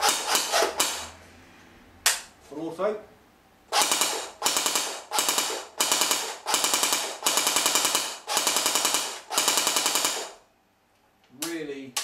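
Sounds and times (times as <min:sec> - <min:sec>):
airsoft gun firing bursts: 0:00.0 - 0:01.1, 0:03.7 - 0:10.4.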